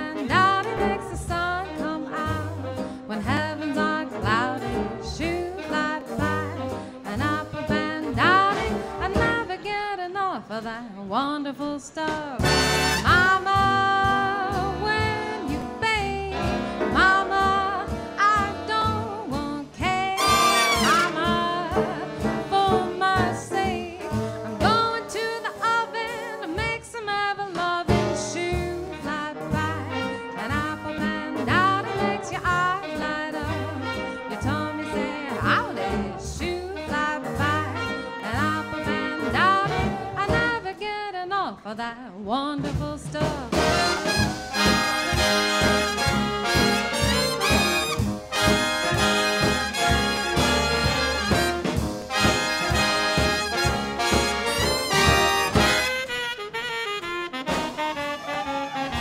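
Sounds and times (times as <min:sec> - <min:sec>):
swing big band playing: 0:00.0 - 0:41.2, 0:42.2 - 0:59.0
horn section punchy phrases: 0:12.4 - 0:14.0, 0:15.1 - 0:19.0, 0:19.8 - 0:23.4, 0:29.4 - 0:36.1, 0:36.8 - 0:40.5, 0:43.5 - 0:59.0.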